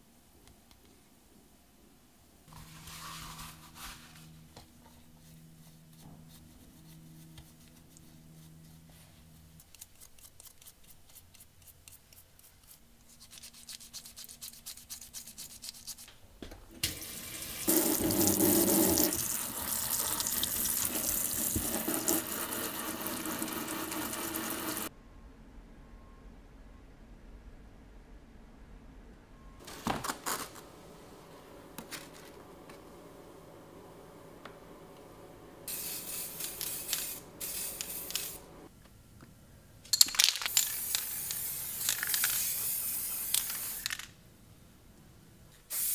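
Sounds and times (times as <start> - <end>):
toothbrush scrubbing metal parts: 9.4 - 16.1, 35.7 - 38.5
steady hum: 24.9 - 39.7.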